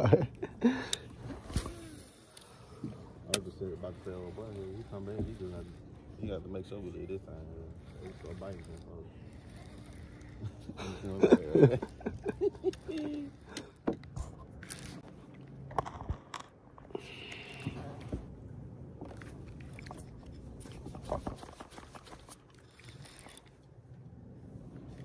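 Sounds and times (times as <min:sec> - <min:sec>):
hand rubbing on phone: 0:03.6 - 0:07.1, 0:07.7 - 0:12.0, 0:19.2 - 0:22.4.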